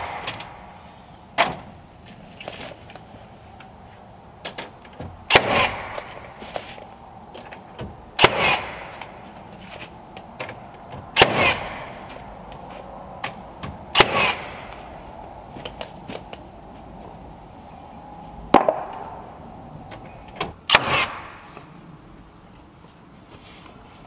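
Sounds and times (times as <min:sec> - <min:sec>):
nail gun firing into wood: 0:00.0 - 0:00.6, 0:05.3 - 0:06.2, 0:08.2 - 0:09.1, 0:11.2 - 0:11.9, 0:13.9 - 0:14.6, 0:20.6 - 0:21.4.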